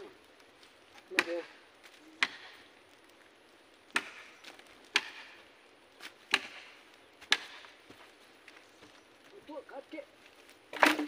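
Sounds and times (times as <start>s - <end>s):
machete chopping wood: 1.1s - 1.5s, 2.2s - 2.6s, 3.9s - 4.3s, 4.9s - 5.4s, 6.3s - 7.6s, 10.8s - 11.0s.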